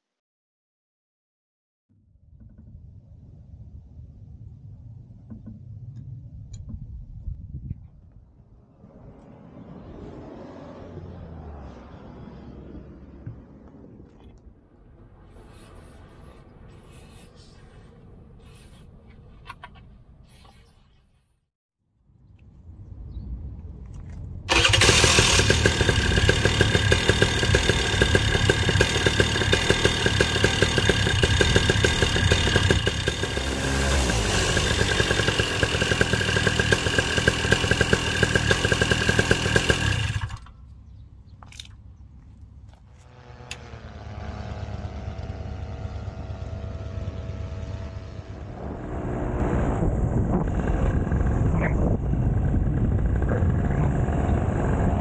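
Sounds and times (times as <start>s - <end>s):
quieter engine with shifting pitch: 2.5s - 20.4s, 22.2s - 55.0s
paramotor engine running: 24.5s - 41.7s, 42.7s - 55.0s.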